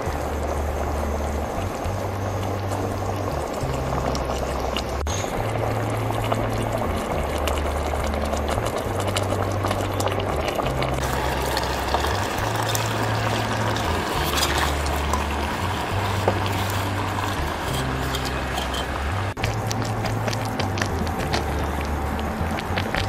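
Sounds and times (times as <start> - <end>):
background music: 0.0 - 23.0
curry bubbling in a pot: 0.0 - 23.0.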